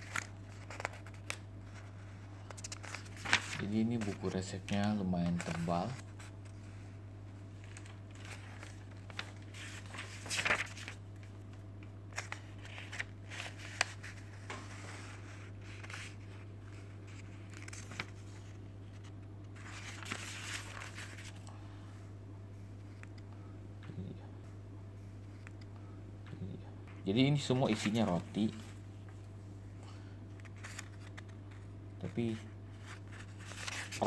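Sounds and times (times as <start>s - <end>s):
pages turning and rustling: 0.0s - 6.8s, 7.5s - 21.5s, 27.5s - 29.2s, 30.4s - 34.0s
steady low hum: 0.0s - 34.0s.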